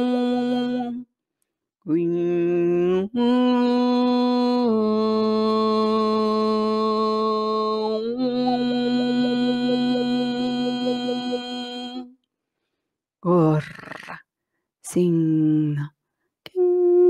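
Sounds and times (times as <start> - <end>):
person chanting long held notes: 1.9 - 12.1.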